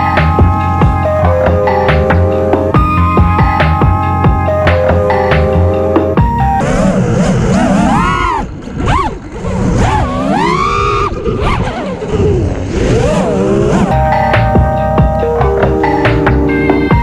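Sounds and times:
music: 0:00.0 - 0:07.2, 0:13.7 - 0:17.0.

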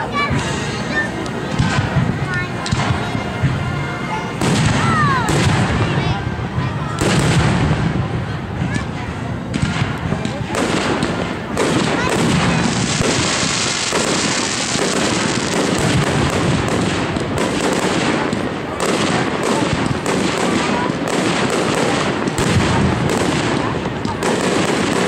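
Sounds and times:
firework shells bursting: 0:09.5 - 0:25.0.

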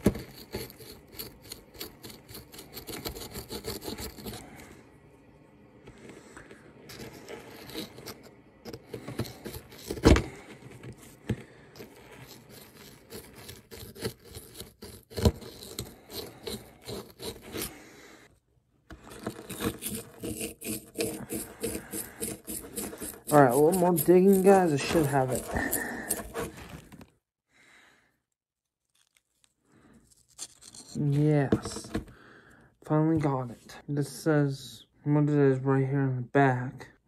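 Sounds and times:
hand tool scraping a block: 0:00.0 - 0:04.6, 0:06.0 - 0:17.9, 0:18.9 - 0:27.1, 0:30.0 - 0:32.1.

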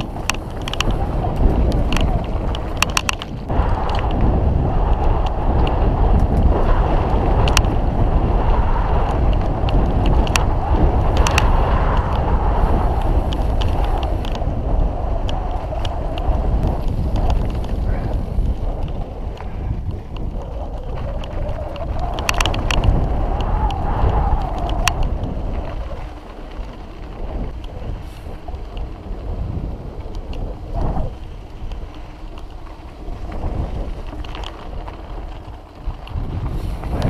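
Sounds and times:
bike clicks and rattles: 0:00.0 - 0:37.0
bike rolling over gravel: 0:00.0 - 0:37.0
wind on microphone: 0:00.0 - 0:37.0.

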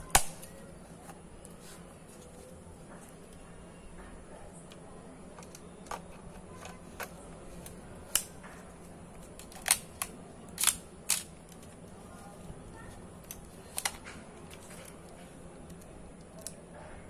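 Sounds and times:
camera mechanical clicks: 0:09.4 - 0:11.3.

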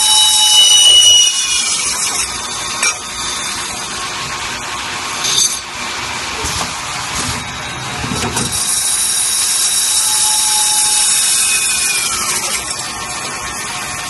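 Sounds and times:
cutting tool squeal: 0:00.0 - 0:03.9, 0:08.5 - 0:14.0
hiss of metal cutting: 0:08.5 - 0:13.9.

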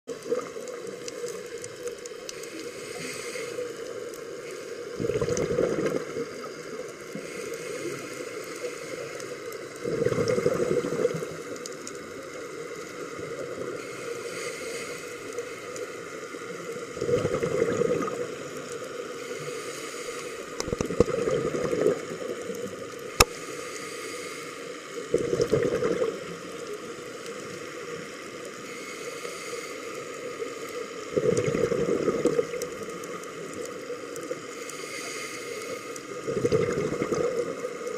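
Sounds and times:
exhaled bubbles gurgling underwater: 0:00.1 - 0:14.0, 0:15.2 - 0:23.3, 0:25.0 - 0:28.6, 0:30.0 - 0:34.6, 0:35.8 - 0:37.9
regulator hiss: 0:00.3 - 0:05.0, 0:06.1 - 0:09.8, 0:10.8 - 0:16.9, 0:18.2 - 0:20.8, 0:22.2 - 0:25.1, 0:26.3 - 0:31.1, 0:32.9 - 0:36.2.

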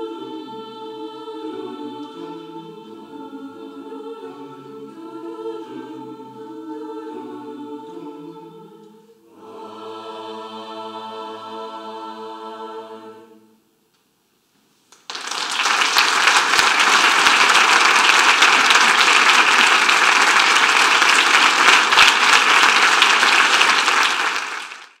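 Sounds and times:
choir holding a chord: 0:00.0 - 0:13.7, 0:16.1 - 0:24.8
audience applause: 0:15.0 - 0:25.0.

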